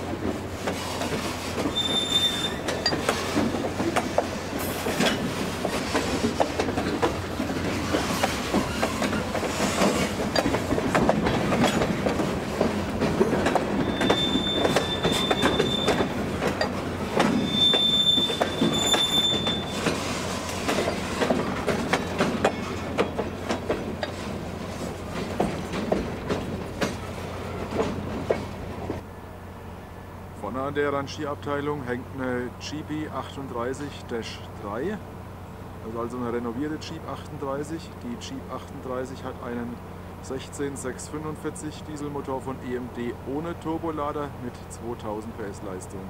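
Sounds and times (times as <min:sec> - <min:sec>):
freight car wheels rumbling: 0:00.0 - 0:29.0
high wheel squeal: 0:00.8 - 0:03.4, 0:07.8 - 0:09.8, 0:13.7 - 0:16.7, 0:17.3 - 0:20.4
clicks over rail joints: 0:02.6 - 0:24.3.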